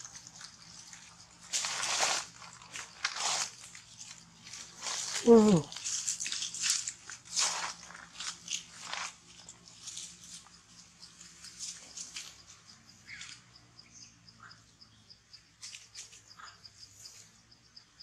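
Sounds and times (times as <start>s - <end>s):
rustling and crunching dry leaves: 0.0s - 13.4s
insect chirping: 0.0s - 18.0s.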